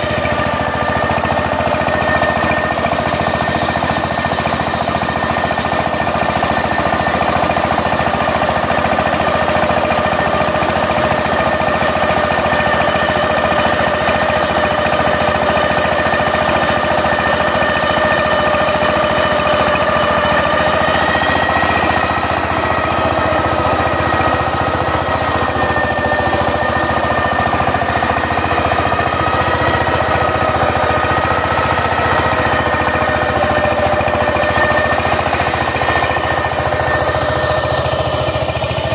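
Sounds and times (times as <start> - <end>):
diesel engine running: 0.0 - 38.9
steady whine: 0.0 - 38.9.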